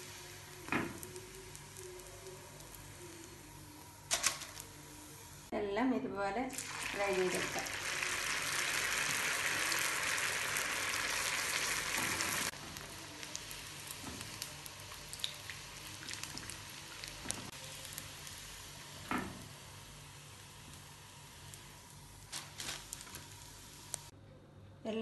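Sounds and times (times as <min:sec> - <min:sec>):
deep-frying sizzle with crackles: 0:00.0 - 0:05.5, 0:06.5 - 0:24.1.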